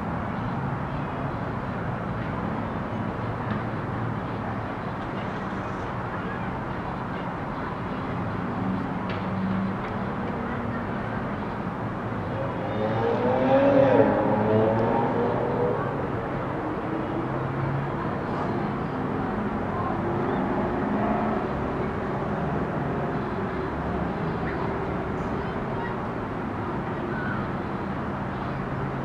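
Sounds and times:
city traffic hum: 0:00.0 - 0:29.0.

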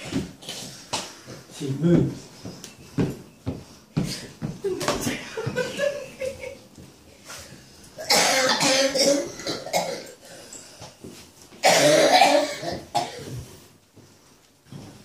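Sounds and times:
person coughing: 0:08.0 - 0:10.2, 0:11.6 - 0:13.4.

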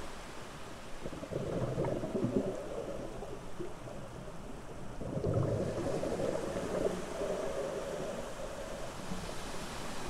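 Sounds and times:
underwater water rumble: 0:00.8 - 0:10.0.

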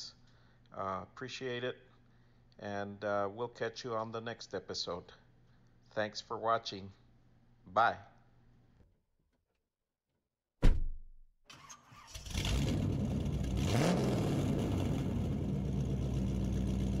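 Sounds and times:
car engine starting and running: 0:11.5 - 0:17.0.

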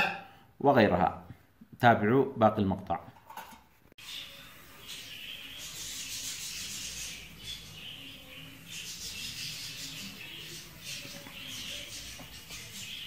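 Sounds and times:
budgerigars chirping: 0:04.0 - 0:13.0.

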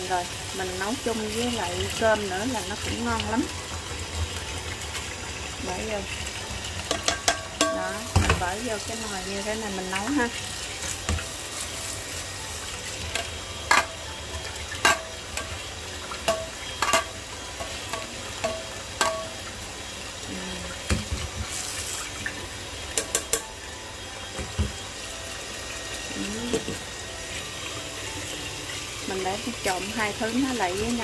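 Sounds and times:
metal strainer knocking on pot: 0:06.9 - 0:08.5.

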